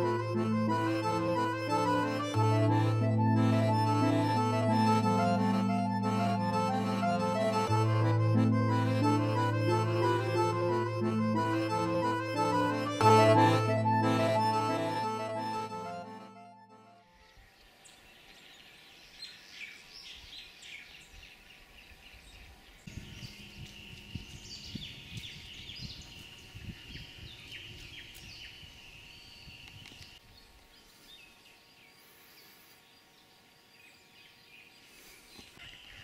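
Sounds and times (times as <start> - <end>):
steady high trill: 0.0 - 16.9
birds chirping: 17.2 - 36.0.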